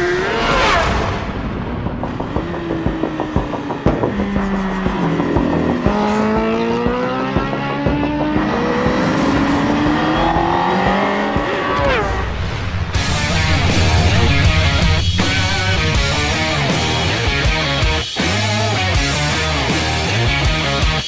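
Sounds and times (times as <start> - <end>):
motorcycle engine accelerating: 0.0 - 18.0
music with a regular beat: 1.9 - 11.6, 13.0 - 21.0
sharp whoosh: 11.6 - 17.5.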